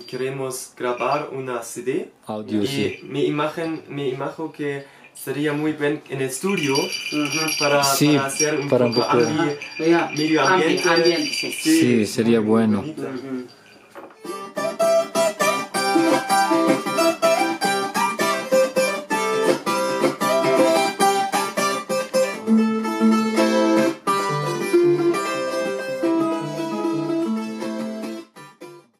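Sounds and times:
acoustic guitar plucking: 0:06.7 - 0:28.8.

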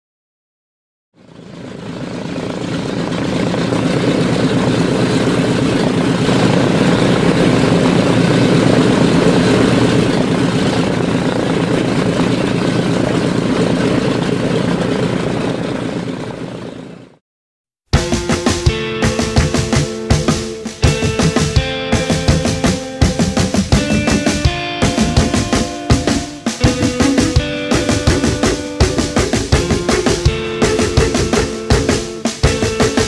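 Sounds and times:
propeller aircraft engines: 0:01.2 - 0:17.2, 0:18.0 - 0:33.0.

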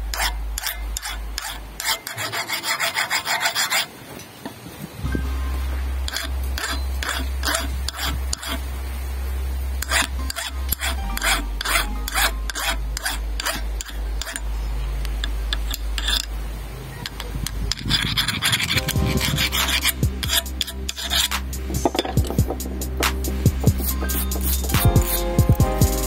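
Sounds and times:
hand file scraping steel: 0:00.0 - 0:03.9, 0:06.1 - 0:08.6, 0:09.8 - 0:14.4, 0:15.5 - 0:16.3, 0:17.1 - 0:25.7
background music: 0:09.9 - 0:13.5, 0:18.8 - 0:26.0.

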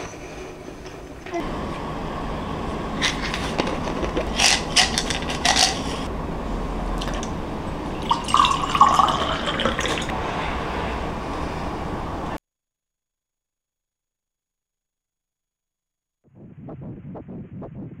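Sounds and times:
water pouring into a mug: 0:08.0 - 0:10.2.

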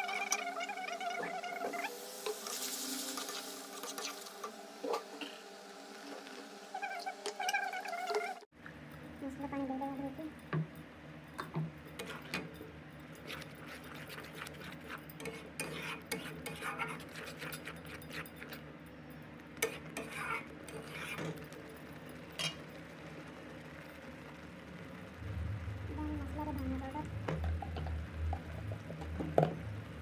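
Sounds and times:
steady low hum: 0:08.5 - 0:30.0
spatula scraping metal pan: 0:13.1 - 0:18.6, 0:19.6 - 0:21.4.

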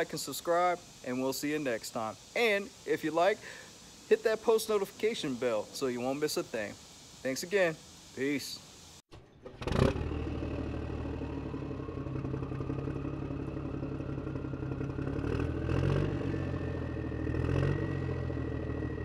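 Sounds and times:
engine starting and running: 0:09.1 - 0:19.0
engine whine rising in pitch: 0:09.1 - 0:19.0
engine revving: 0:09.4 - 0:19.0.

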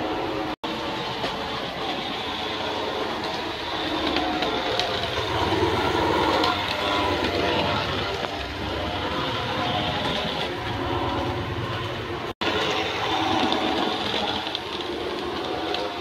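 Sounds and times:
model train motor whirring: 0:00.0 - 0:16.0
wheels rattling over rails: 0:00.0 - 0:16.0.

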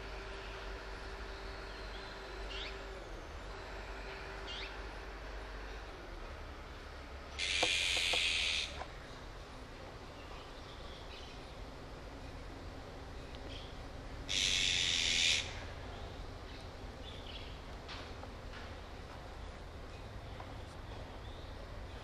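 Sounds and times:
magpies harsh scolding calls: 0:07.3 - 0:08.8, 0:14.3 - 0:15.6.

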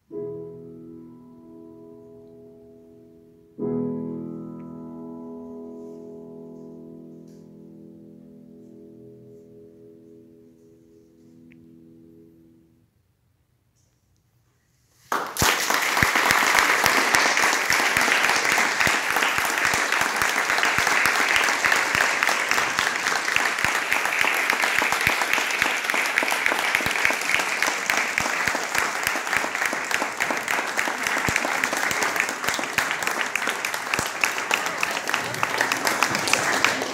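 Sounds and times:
audience applauding: 0:15.1 - 0:36.9.

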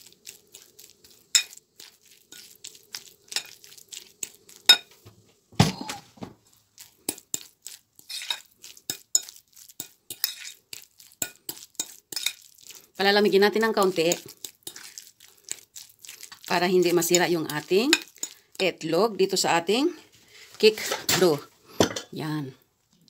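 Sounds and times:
fork clinking against bowl: 0:01.3 - 0:01.6, 0:03.3 - 0:03.6, 0:08.1 - 0:10.6, 0:11.2 - 0:12.5.

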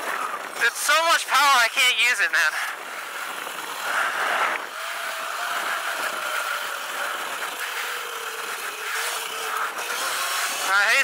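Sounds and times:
steady rushing noise: 0:00.0 - 0:11.0
electric motor whining: 0:02.6 - 0:11.0.

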